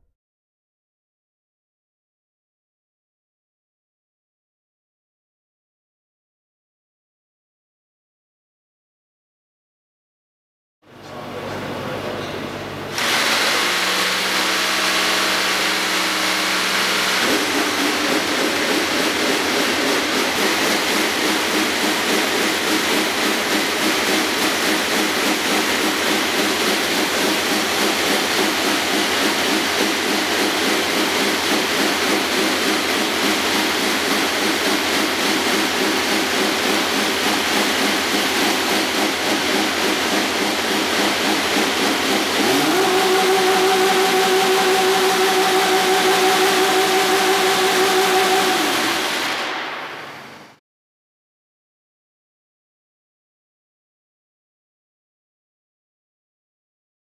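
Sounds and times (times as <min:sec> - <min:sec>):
racing car engine idling: 0:14.6 - 0:49.3.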